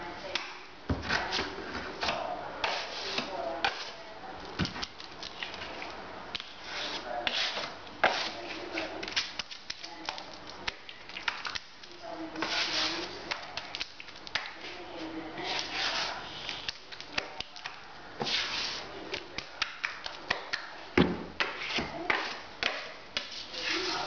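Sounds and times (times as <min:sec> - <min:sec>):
trowel scraping plaster in bucket: 0:06.6 - 0:08.9.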